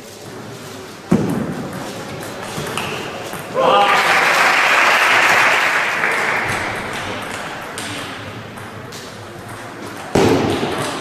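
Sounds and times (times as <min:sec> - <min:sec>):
crowd noise burst: 0:02.5 - 0:08.6
crowd clapping and cheering: 0:03.6 - 0:07.2.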